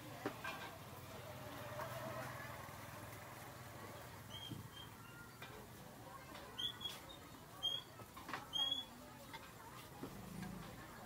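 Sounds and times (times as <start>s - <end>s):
small bird chirping: 4.2s - 5.4s, 6.6s - 7.9s.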